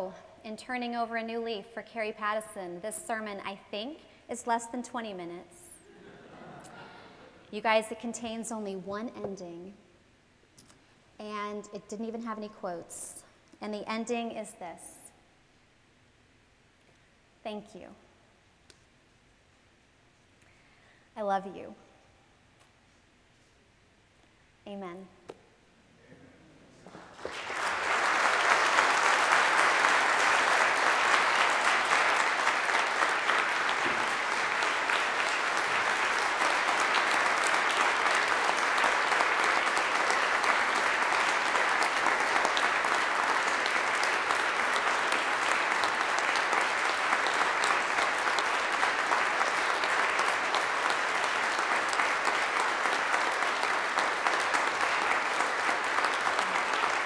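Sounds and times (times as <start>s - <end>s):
congregation applauding: 26.9s - 57.0s.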